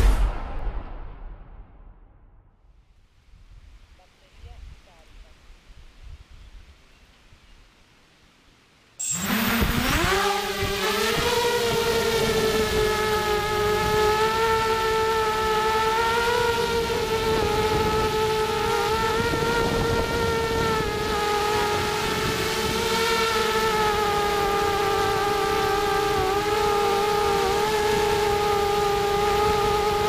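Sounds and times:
quadcopter motors buzzing: 9.0 - 30.0.

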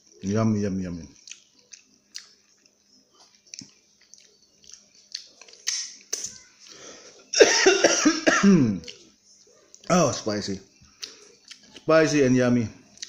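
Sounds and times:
lip smacks and chewing: 1.2 - 6.8, 10.9 - 11.9.

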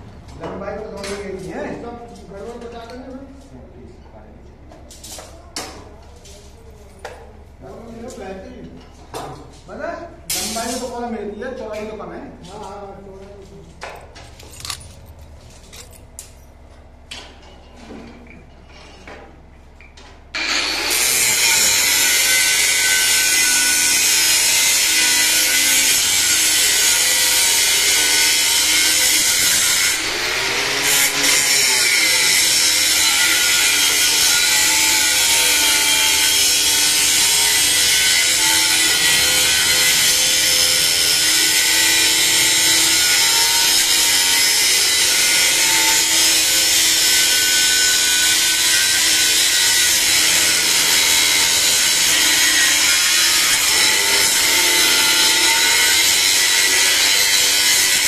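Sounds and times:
angle grinder cutting metal: 20.4 - 58.0.

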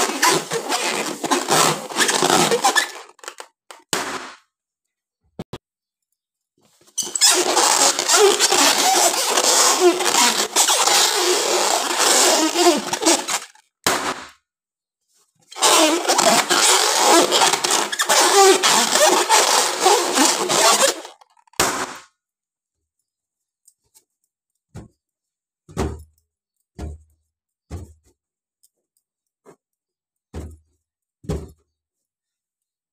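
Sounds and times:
rubber balloons squeaking: 0.0 - 4.3, 6.9 - 14.3, 15.5 - 22.1.

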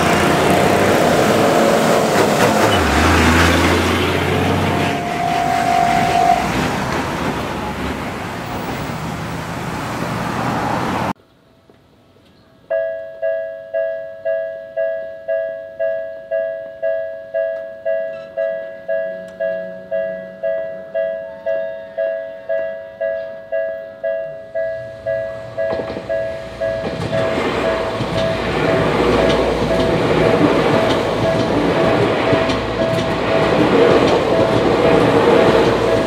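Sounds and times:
train passing with wheel noise: 0.0 - 11.2, 17.3 - 36.0
level crossing bell ringing: 4.4 - 6.7, 12.7 - 29.0.

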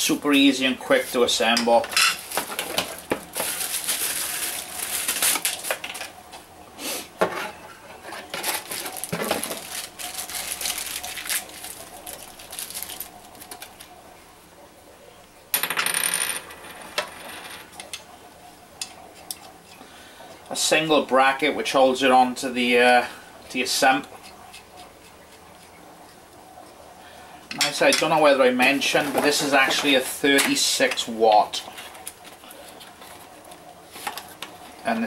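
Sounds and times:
plastic wrapping crinkling: 2.1 - 6.2, 8.1 - 14.0.

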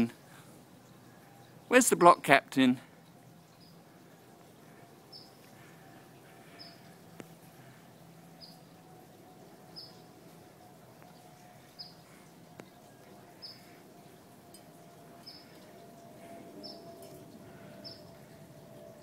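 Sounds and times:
faint steady hum: 0.0 - 19.0
small bird chirping: 5.1 - 5.4, 6.5 - 6.9, 8.4 - 8.7, 9.7 - 10.1, 11.6 - 12.1, 13.4 - 13.8.

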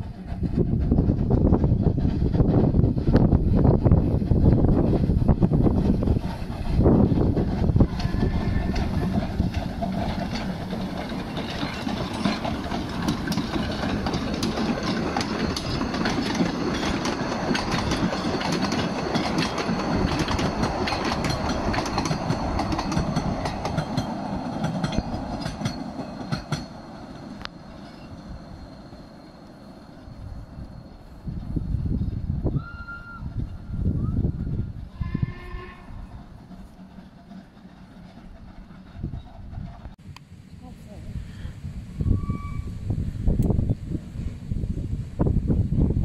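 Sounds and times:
wheels clicking over rail joints: 0.0 - 29.6, 34.8 - 40.2
steam train passing: 0.0 - 46.0.

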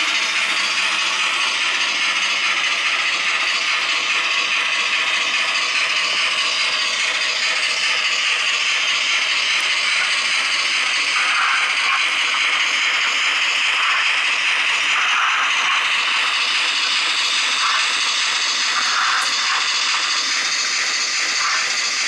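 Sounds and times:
model trains whirring on track: 0.0 - 22.0.

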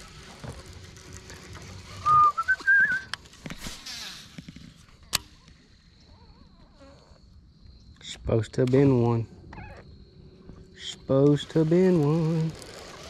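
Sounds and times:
person whistling: 2.0 - 3.1
fishing reel whirring: 11.3 - 13.0.

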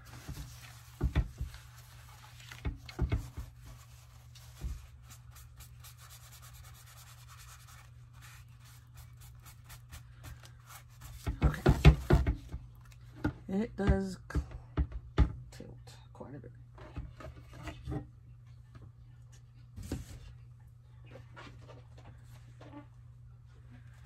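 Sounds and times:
soft knocks and bumps: 0.0 - 3.8, 11.1 - 15.4
paper towel wiping paper: 0.0 - 12.3.

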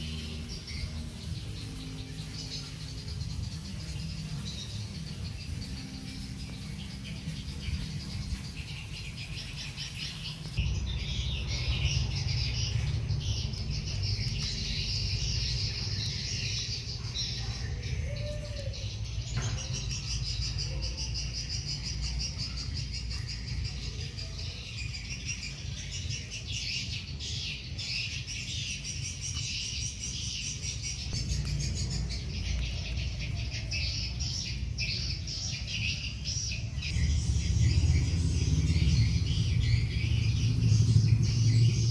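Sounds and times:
low rumble: 10.5 - 16.9, 36.8 - 41.9.

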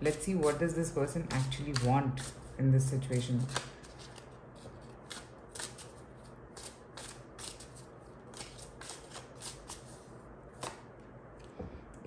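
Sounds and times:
cards being shuffled: 3.3 - 6.0.

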